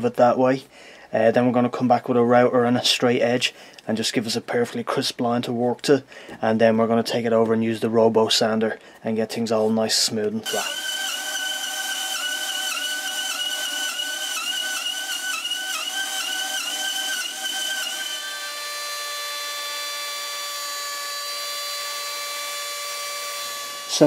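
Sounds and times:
bandsaw cutting wood: 0:10.4 - 0:24.0
handheld router running: 0:10.4 - 0:24.0.

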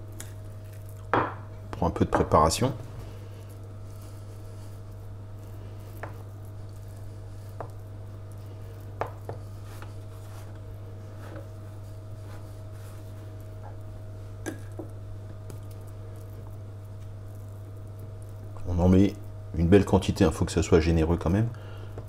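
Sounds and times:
fork spreading on bread: 0:03.1 - 0:13.8.

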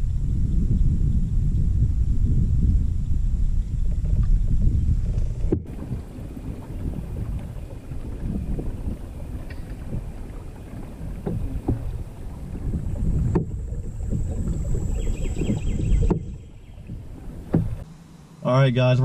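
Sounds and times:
wind buffeting microphone: 0:00.0 - 0:17.9
water swishing along hull: 0:00.0 - 0:18.4
light knocks: 0:16.0 - 0:17.8.

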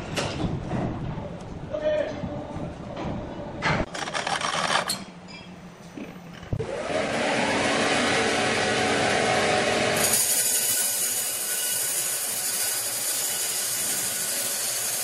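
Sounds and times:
knocks and clanks: 0:00.0 - 0:01.2
band saw mill whining: 0:06.6 - 0:15.0.

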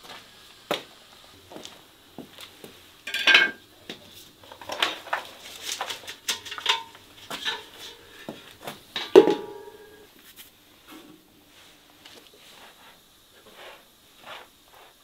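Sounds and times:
hard objects clinking and clattering: 0:03.1 - 0:03.6, 0:04.4 - 0:10.0.

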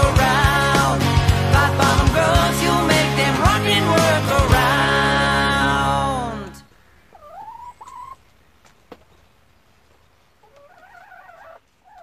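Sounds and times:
animal calling: 0:06.6 - 0:08.2, 0:10.4 - 0:12.0.

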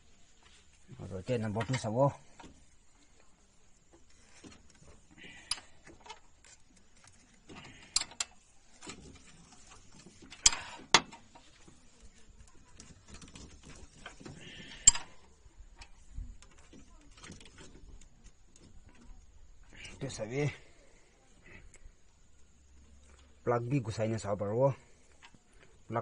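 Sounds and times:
spanner clinking on metal: 0:14.6 - 0:15.2.

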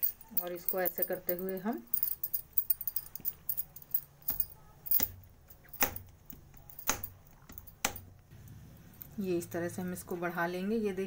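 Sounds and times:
bangles jingling and clicking: 0:00.0 - 0:08.2.

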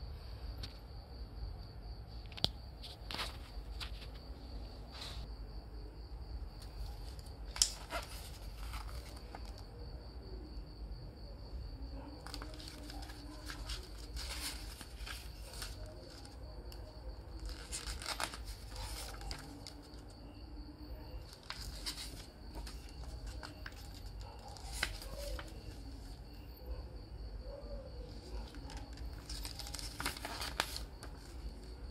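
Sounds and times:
paper pages rustling: 0:02.8 - 0:04.2, 0:06.7 - 0:09.7, 0:12.2 - 0:20.2, 0:21.2 - 0:26.2, 0:28.1 - 0:31.9.

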